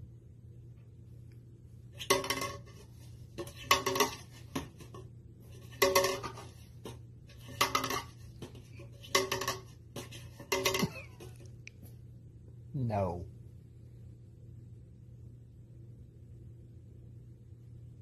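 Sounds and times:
plastic cup clattering on desk: 2.0s - 11.4s.

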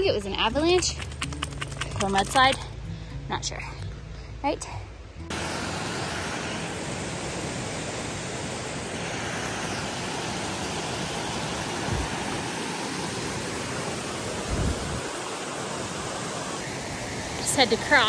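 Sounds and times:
creek and waterfall roaring: 5.3s - 18.0s.

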